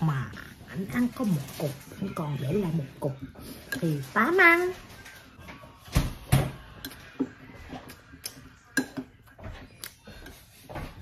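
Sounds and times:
spoon clinking against ceramic bowl: 6.8 - 9.2.

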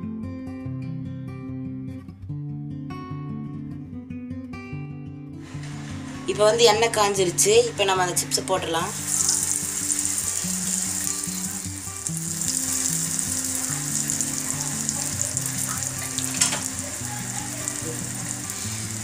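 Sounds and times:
soft background music: 5.4 - 19.0
deep-frying sizzle and crackle: 5.5 - 7.0, 8.9 - 19.0.

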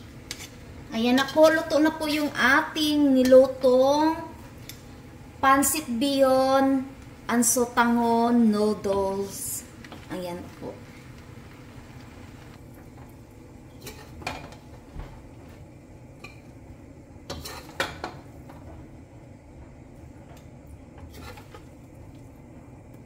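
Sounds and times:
metal tongs scraping a wok: 0.0 - 3.6, 13.7 - 14.7, 17.3 - 18.1, 21.0 - 21.7.

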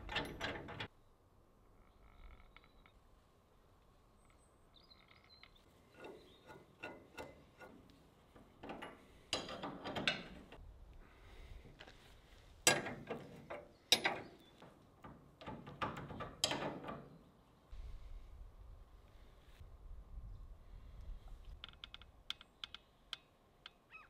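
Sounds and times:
spanner clicking on metal bolts: 0.0 - 0.9, 5.9 - 10.6, 12.7 - 17.2.

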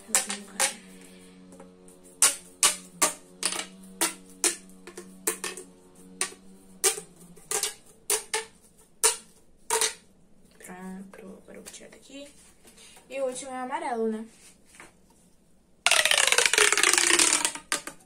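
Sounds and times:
plastic pop tubes clicking: 0.0 - 10.0, 15.9 - 18.0
faint low hum: 0.0 - 14.4.

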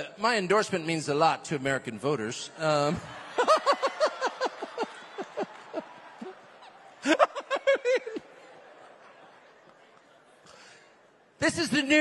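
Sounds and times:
man laughing: 7.0 - 8.4.

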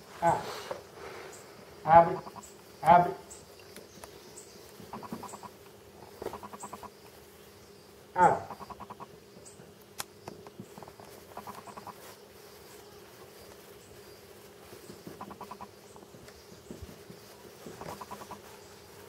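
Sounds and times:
animal call rapid trill: 8.2 - 9.0.

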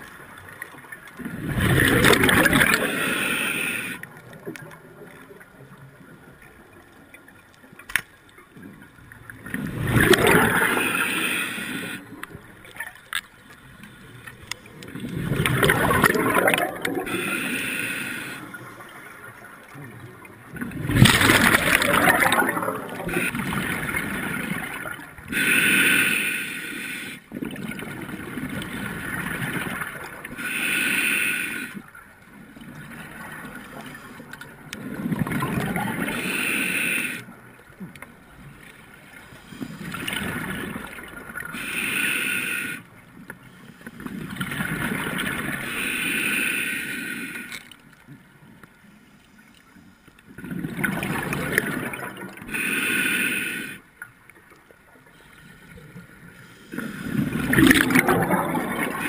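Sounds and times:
exhaled bubbles gurgling: 1.1 - 6.3, 8.9 - 12.9, 14.1 - 25.6, 27.3 - 30.7, 32.6 - 37.3, 50.3 - 52.7, 55.6 - 59.0
diver breathing through regulator: 1.9 - 4.1, 10.1 - 12.2, 17.0 - 18.6, 25.3 - 27.3, 30.4 - 31.9, 36.0 - 37.3, 41.5 - 42.9, 45.6 - 47.8, 52.4 - 53.9.

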